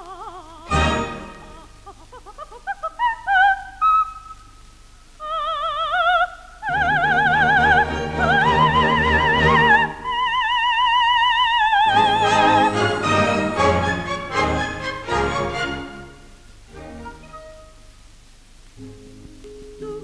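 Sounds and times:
soprano singing opera: 0:00.0 - 0:04.2, 0:05.2 - 0:16.2
orchestra playing: 0:00.7 - 0:01.7, 0:07.6 - 0:10.0, 0:11.9 - 0:17.8.

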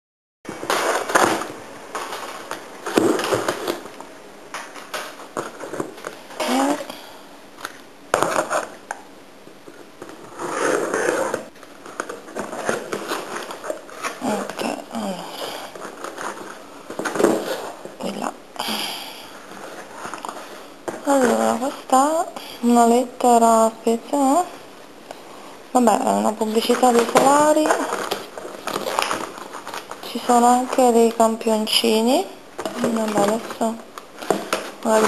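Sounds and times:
cardboard flaps scraping and rustling: 0:00.5 - 0:07.0, 0:09.7 - 0:18.0, 0:26.7 - 0:31.4, 0:32.6 - 0:35.0.

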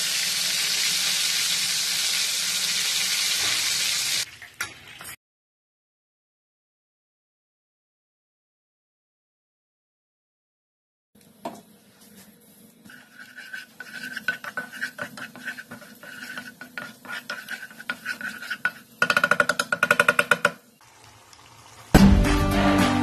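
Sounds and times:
spatula scraping a pan: 0:12.9 - 0:20.5.

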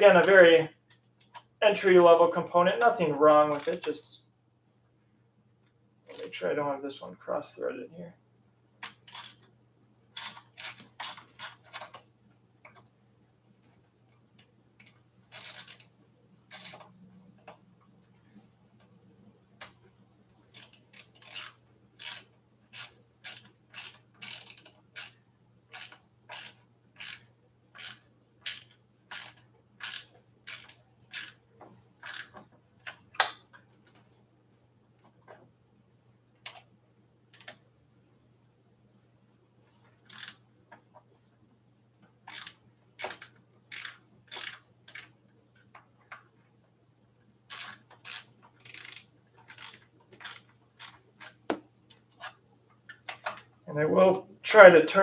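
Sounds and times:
ratchet wrench clicking: 0:03.5 - 0:03.8, 0:08.8 - 0:09.5, 0:10.2 - 0:11.9, 0:14.8 - 0:15.9, 0:16.5 - 0:16.9, 0:20.5 - 0:31.4, 0:32.0 - 0:32.3, 0:37.3 - 0:37.6, 0:40.1 - 0:40.4, 0:42.3 - 0:45.1, 0:47.5 - 0:51.4.

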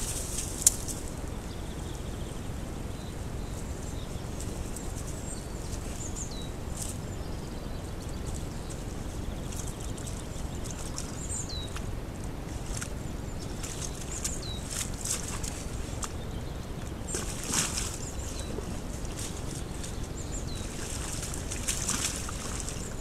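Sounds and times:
microphone hiss: 0:00.0 - 0:23.0
bird chirping: 0:01.4 - 0:11.8, 0:12.7 - 0:23.0
boar splashing in mud: 0:12.5 - 0:16.2, 0:17.1 - 0:23.0.

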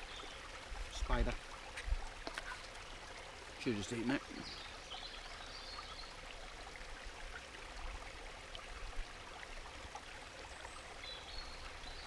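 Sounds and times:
stream rushing: 0:00.0 - 0:12.0.

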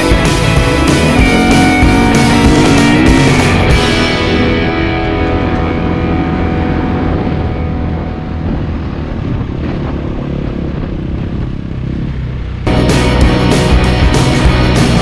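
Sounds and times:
music track: 0:00.0 - 0:09.0, 0:12.7 - 0:15.0
dirt bike engine running: 0:00.0 - 0:15.0.

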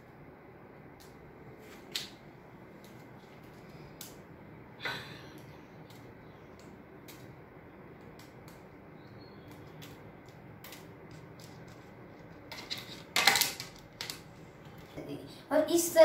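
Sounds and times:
plastic parts clicking: 0:09.5 - 0:14.3.

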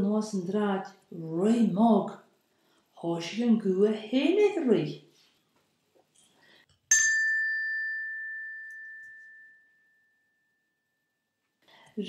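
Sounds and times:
small bell ringing: 0:06.9 - 0:11.3.

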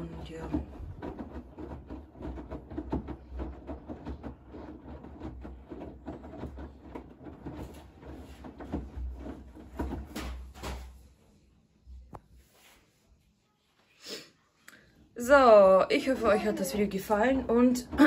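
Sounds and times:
laundry thudding in drum: 0:00.0 - 0:11.0
water sloshing in washing machine: 0:00.0 - 0:11.1, 0:15.2 - 0:18.0.

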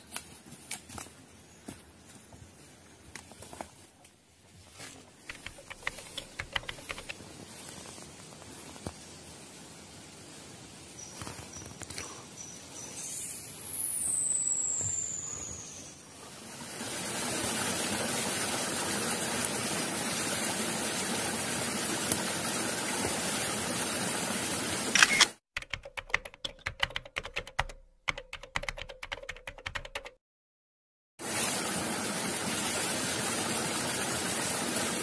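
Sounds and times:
typewriter typing clicks: 0:05.3 - 0:07.1
high whistle sliding down: 0:12.9 - 0:16.0.

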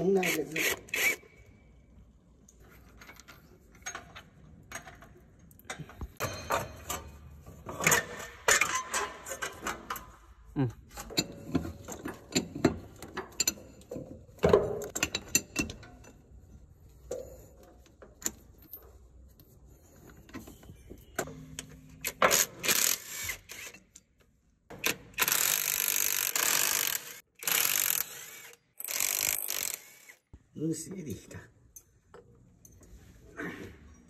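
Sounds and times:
impact wrench running on bolts: 0:24.8 - 0:30.2.

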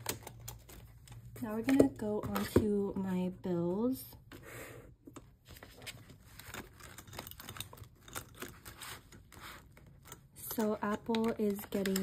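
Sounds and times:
paper rustling: 0:05.4 - 0:12.0
crinkly paper taps: 0:10.5 - 0:12.0.

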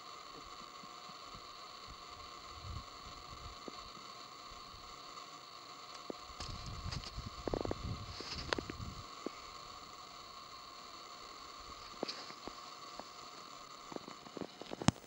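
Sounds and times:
microphone hiss and whine: 0:00.0 - 0:15.0
wind rumbling on microphone: 0:02.5 - 0:03.6, 0:06.4 - 0:09.1.

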